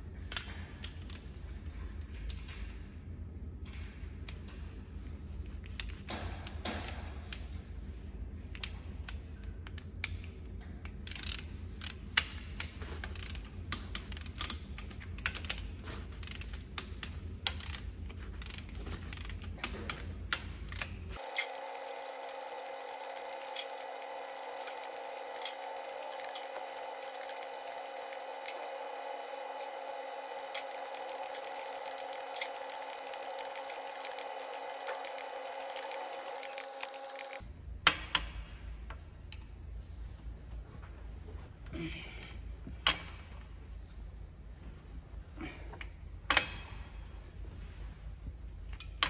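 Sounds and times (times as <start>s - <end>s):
low workshop hum: 0.0s - 49.0s
ratchet wrench clicking: 11.0s - 37.4s
steady higher hum: 12.4s - 37.8s.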